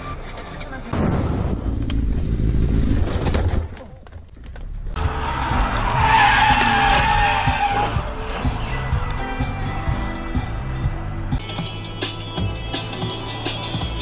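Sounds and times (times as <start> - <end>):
engine and road rumble: 0.0 - 14.0
car tyres squealing: 4.7 - 9.2.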